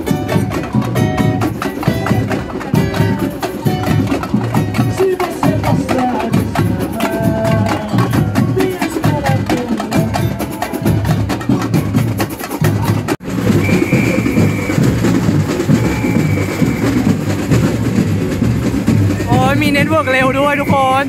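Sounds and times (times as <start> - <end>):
samba percussion band drumming: 0.0 - 21.0
bass-heavy music: 12.7 - 21.0
short held high tones: 13.6 - 14.9, 15.7 - 17.1.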